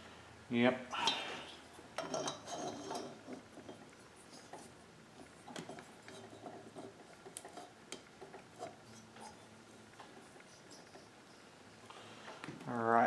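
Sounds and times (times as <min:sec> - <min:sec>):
metal part clicking and scraping: 0:01.0 - 0:11.4.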